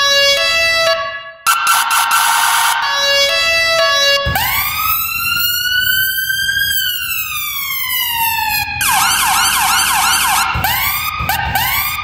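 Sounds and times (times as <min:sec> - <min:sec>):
ambulance siren wailing and yelping: 0:00.0 - 0:12.0.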